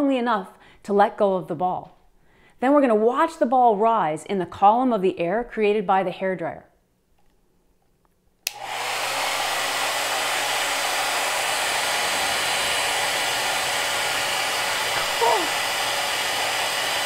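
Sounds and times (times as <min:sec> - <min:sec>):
hair dryer running: 0:08.4 - 0:17.0.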